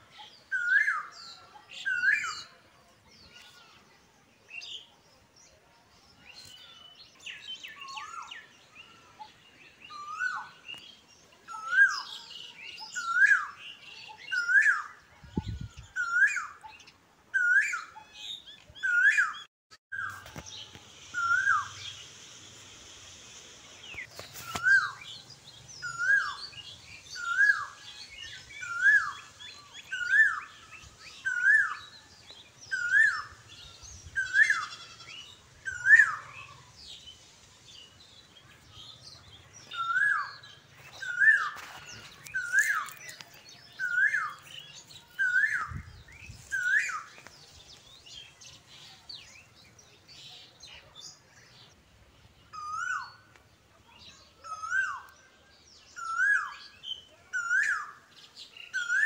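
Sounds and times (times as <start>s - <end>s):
bird chirping: 4.5s - 59.0s
steady hiss: 20.1s - 29.8s.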